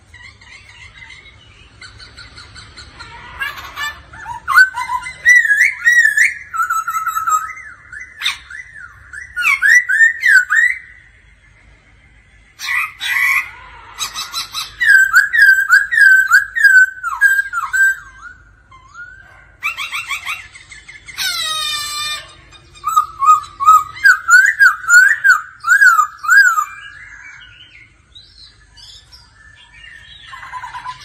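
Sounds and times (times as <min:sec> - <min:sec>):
bird singing whistled notes: 0:04.3 - 0:11.1, 0:14.6 - 0:19.2, 0:22.8 - 0:31.0.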